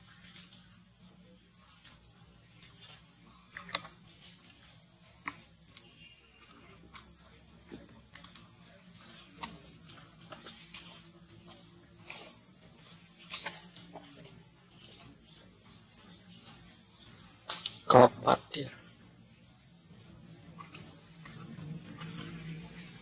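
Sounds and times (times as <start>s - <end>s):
high-pitched insect drone: 0.0s - 23.0s
sharp clicks and snaps: 8.1s - 8.5s.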